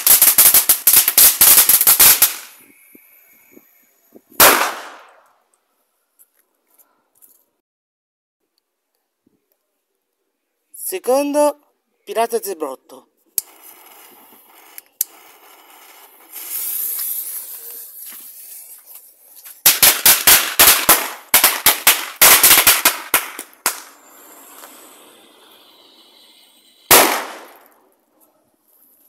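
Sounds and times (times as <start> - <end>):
firecracker sharp cracks: 0.0 - 2.6, 4.4 - 5.4, 13.4 - 18.0, 19.6 - 25.2, 26.9 - 27.9
fuse hissing: 13.4 - 18.8, 23.9 - 26.7.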